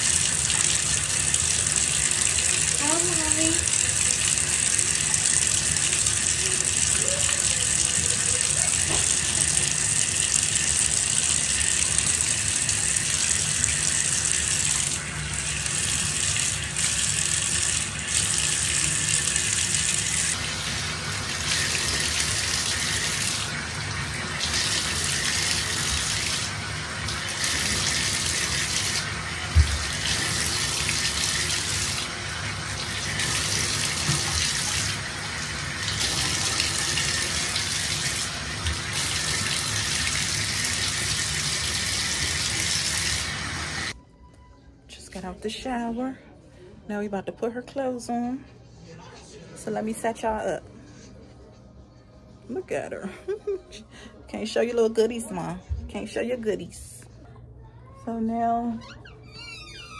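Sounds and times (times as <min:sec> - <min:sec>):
water running into bathtub: 0:00.0 - 0:44.0, 0:58.6 - 0:59.9.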